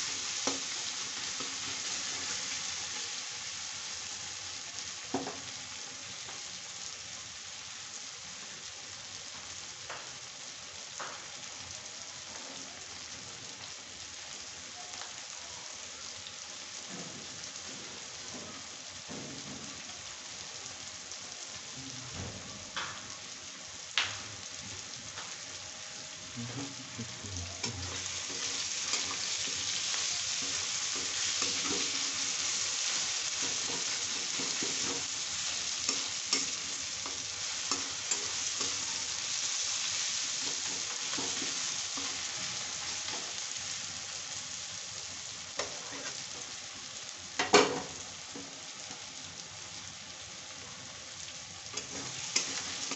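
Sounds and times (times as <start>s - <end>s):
vegetables sizzling in oil: 0.0s - 52.9s
spatula scraping pan: 27.6s - 39.0s.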